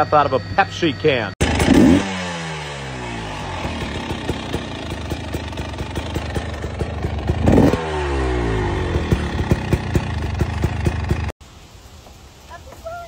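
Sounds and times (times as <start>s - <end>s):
dirt bike engine revving: 1.4s - 11.3s
exhaust popping: 1.4s - 11.3s.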